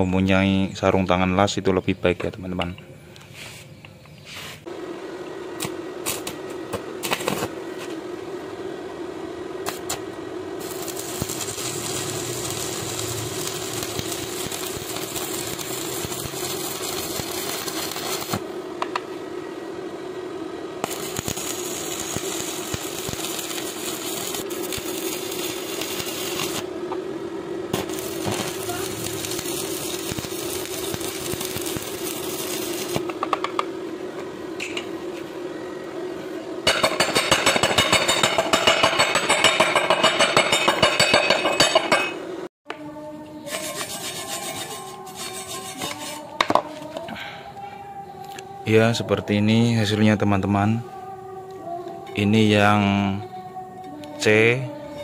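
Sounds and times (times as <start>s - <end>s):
steady hum: 0.0s - 55.0s
welding arc crackling and sizzling: 5.5s - 8.6s, 9.4s - 19.2s, 20.6s - 33.7s, 36.6s - 42.1s.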